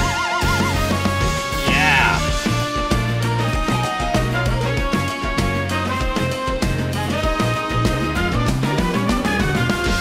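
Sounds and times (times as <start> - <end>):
jazz-funk ensemble playing: 0.2 - 10.0.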